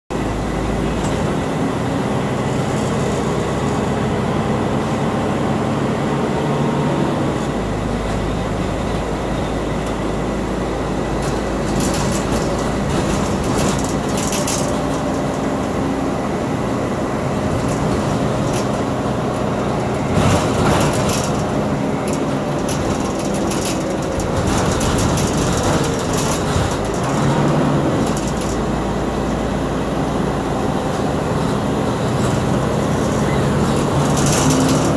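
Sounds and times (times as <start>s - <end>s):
bus engine drone: 0.1s - 34.9s
bodywork rattling: 11.3s - 15.5s, 19.9s - 28.7s.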